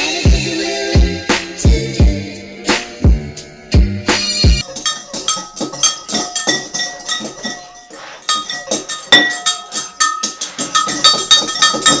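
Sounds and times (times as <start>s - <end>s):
whisks clinking against glass bowls: 4.6s - 12.0s.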